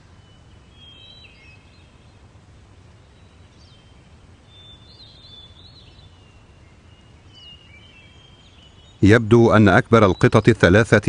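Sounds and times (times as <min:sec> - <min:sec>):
birds whistling and warbling: 0:00.0 - 0:02.3, 0:03.0 - 0:11.0
steady low background noise: 0:00.0 - 0:11.0.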